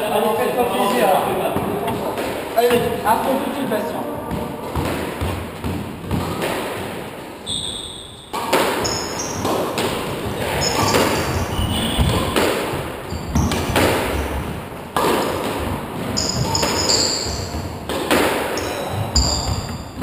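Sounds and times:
sneakers squeaking on wooden floor: 0.7 - 3.2, 3.8 - 20.0
squash ball knocks: 4.3 - 7.1, 8.3 - 20.0.

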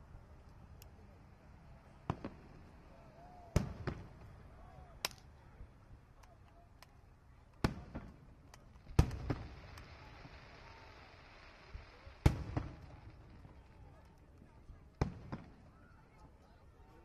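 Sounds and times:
fireworks booming: 2.0 - 2.8, 3.5 - 4.4, 7.6 - 13.8, 15.0 - 15.6.

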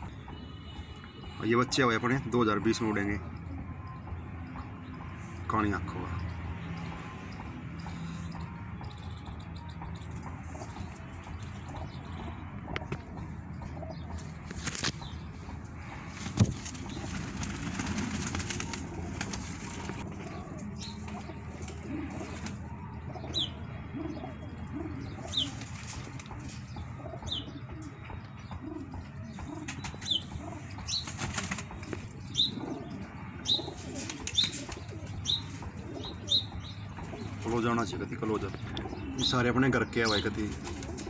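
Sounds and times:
pigeons cooing: 9.6 - 41.0
wings flapping: 14.2 - 15.0, 16.1 - 20.4, 30.9 - 32.0, 33.8 - 35.1, 40.5 - 41.0.

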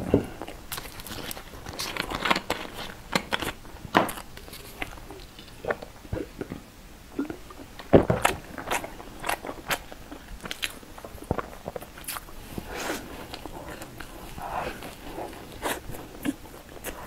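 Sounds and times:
chewing: 7.2 - 17.0.

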